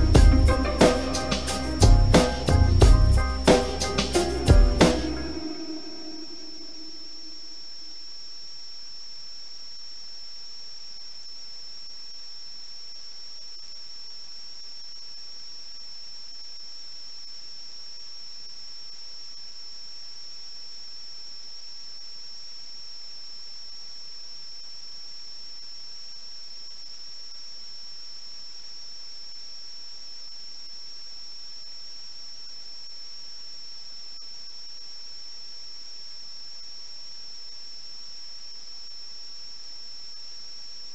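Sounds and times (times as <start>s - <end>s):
high-pitched whistle: 0.0s - 7.4s
even hiss: 0.0s - 40.9s.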